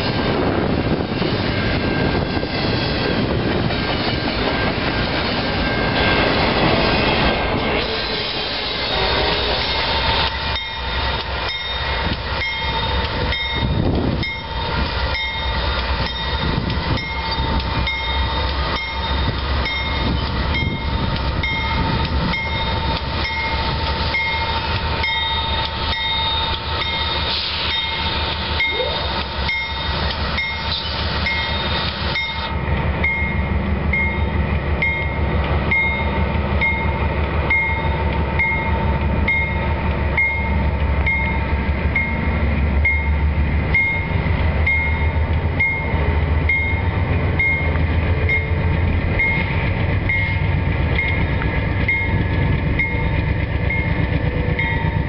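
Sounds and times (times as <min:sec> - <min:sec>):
freight train rumble: 0:00.0 - 0:55.0
railroad crossing bell ringing: 0:00.0 - 0:55.0
train wheel clatter: 0:00.0 - 0:55.0.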